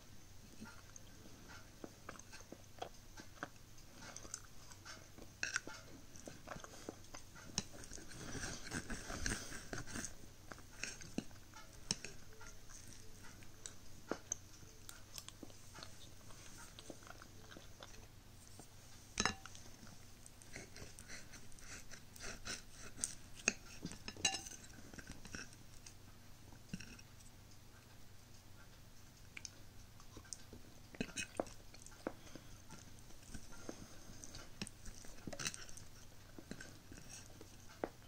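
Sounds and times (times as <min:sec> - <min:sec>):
chewing: 0:00.4 - 0:38.0
cutlery scraping a plate: 0:20.5 - 0:25.5
metal clinking on plate: 0:24.1 - 0:24.6.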